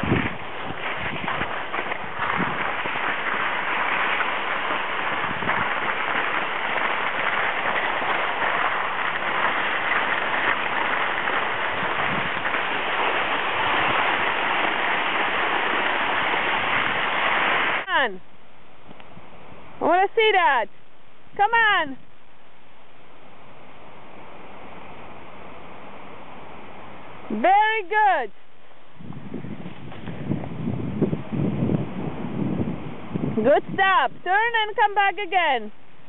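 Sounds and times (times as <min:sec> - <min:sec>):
skis sliding on snow: 0:00.0 - 0:18.0, 0:29.3 - 0:30.7.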